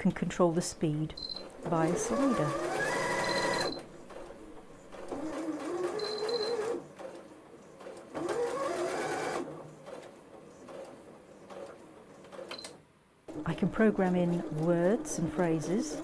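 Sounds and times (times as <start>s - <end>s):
sewing machine stitching: 1.5s - 12.6s.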